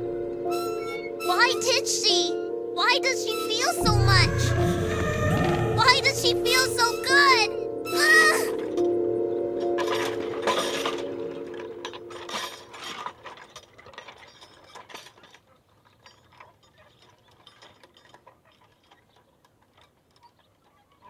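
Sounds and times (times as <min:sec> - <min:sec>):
swing creaking on chains: 0:09.6 - 0:21.0.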